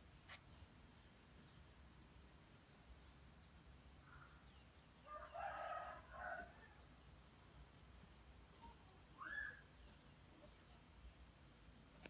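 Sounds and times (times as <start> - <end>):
faint rooster crowing: 5.0 - 6.9.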